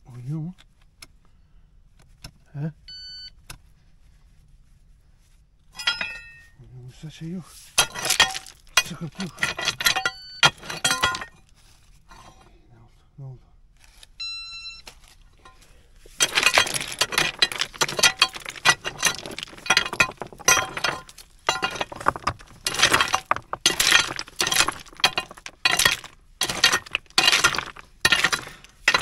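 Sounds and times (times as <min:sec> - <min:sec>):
pry bar levering stones: 0:05.8 - 0:06.5, 0:07.7 - 0:11.5, 0:15.4 - 0:29.0
stones clinking and rattling: 0:05.8 - 0:06.6, 0:07.6 - 0:12.4, 0:14.9 - 0:29.0.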